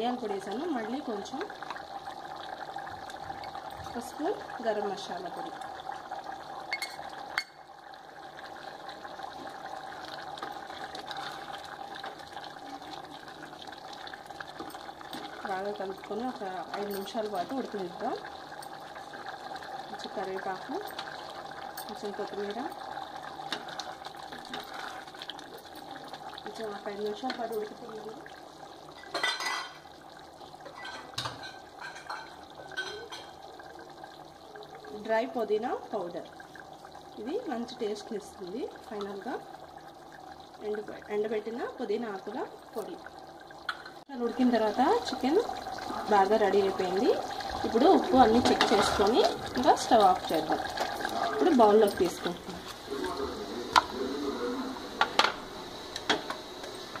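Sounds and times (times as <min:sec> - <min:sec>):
metal cup clinking on pot rim: 0:06.7 - 0:07.6, 0:29.0 - 0:29.8
wooden spatula scraping a pot: 0:24.3 - 0:25.2, 0:47.6 - 0:52.8.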